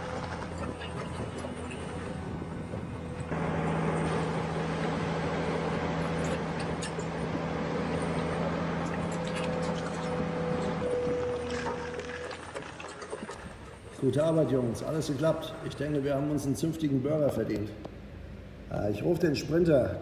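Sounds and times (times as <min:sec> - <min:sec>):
electric motors whirring: 0:00.0 - 0:13.8
low motor hum: 0:00.0 - 0:20.0.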